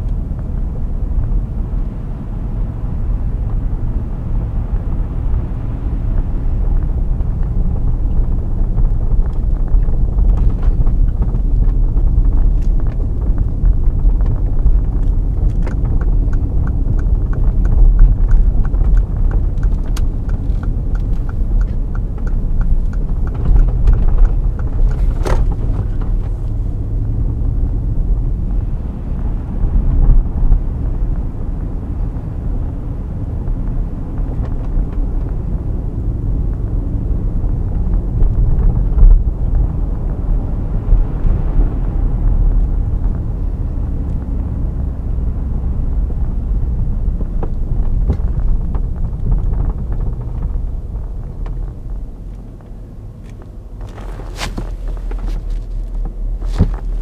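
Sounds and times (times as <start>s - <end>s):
car engine and tyres rumbling: 0.0s - 57.0s
light regular ticks: 15.0s - 25.1s.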